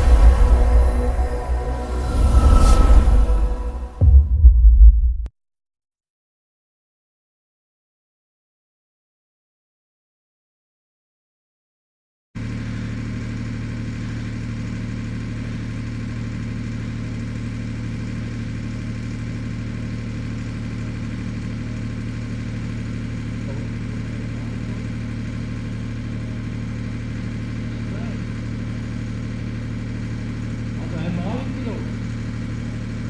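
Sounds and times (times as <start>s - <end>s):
model airplane engine idling: 12.4s - 33.0s.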